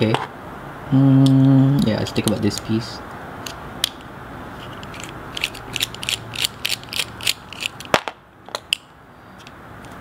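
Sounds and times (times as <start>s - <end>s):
ratcheting screwdriver clicking: 4.8s - 7.9s.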